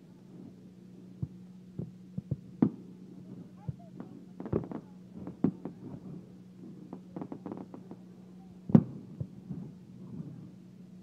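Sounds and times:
steady low hum: 0.0 - 11.0
fireworks bangs and pops: 1.2 - 8.1, 8.7 - 10.5.

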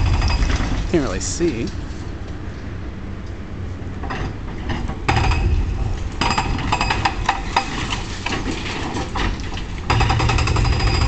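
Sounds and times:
low rumble: 0.0 - 3.0
demolition machine hammering concrete: 5.1 - 5.6, 6.2 - 11.0.

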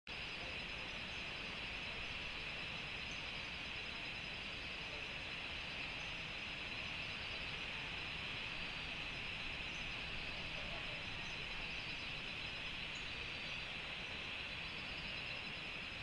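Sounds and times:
night insects droning: 0.1 - 16.0.

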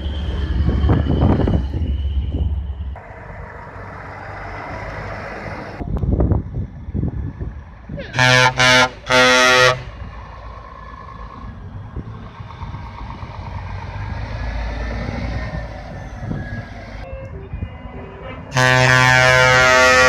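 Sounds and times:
truck diesel engine rumble: 0.0 - 20.0
truck air horn blast: 8.1 - 10.0, 18.2 - 20.0.

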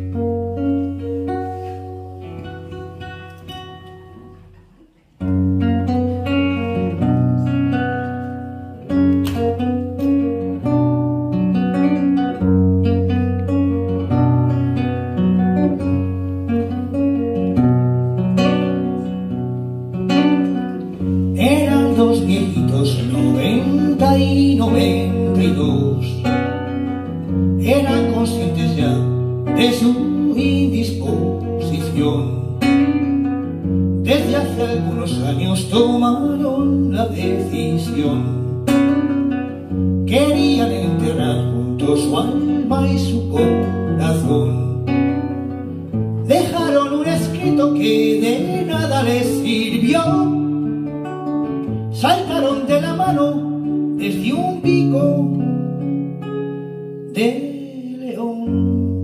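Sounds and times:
acoustic guitar: 0.0 - 59.0
man singing: 20.4 - 33.3, 34.0 - 39.2, 40.0 - 45.6, 46.2 - 50.7, 51.9 - 55.8, 57.1 - 59.0.

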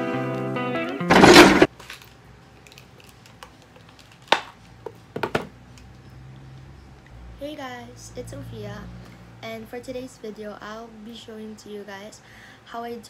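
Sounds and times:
guitar music: 0.0 - 1.7
small objects being handled: 1.1 - 5.0.

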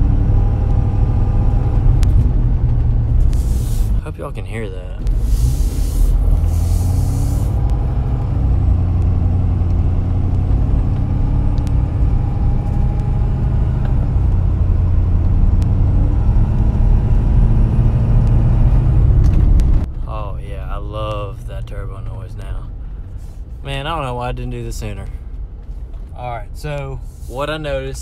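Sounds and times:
diesel engine drone: 0.0 - 28.0
turbo and intake noise: 0.0 - 28.0
rush of hiss: 5.2 - 7.5.

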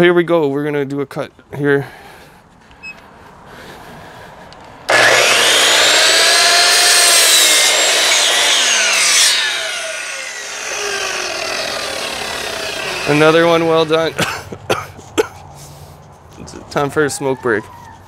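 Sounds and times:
miter saw cutting wood: 4.9 - 14.2
saw blade spinning down: 4.9 - 14.2.

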